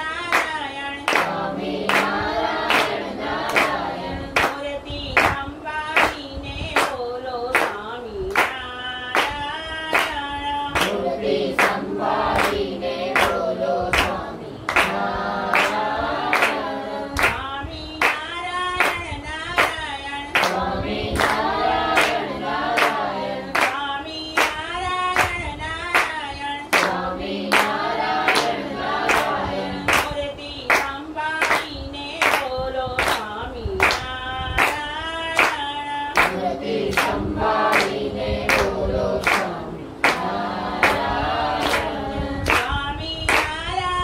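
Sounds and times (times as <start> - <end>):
group singing a prayer: 0.0 - 44.0
hands clapping in time: 0.3 - 4.6, 5.2 - 5.4, 13.2 - 18.2, 18.8 - 19.0, 24.4 - 34.8, 35.4 - 43.6.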